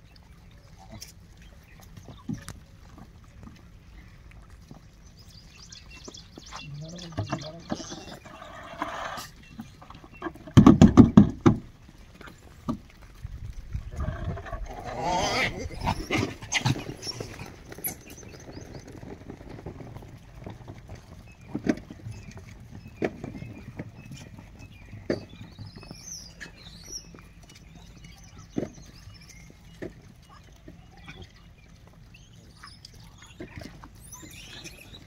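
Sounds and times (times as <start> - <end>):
bird chirps: 5.2 - 10.3, 30.9 - 35.0
rough monkey vocal sound: 14.0 - 18.2.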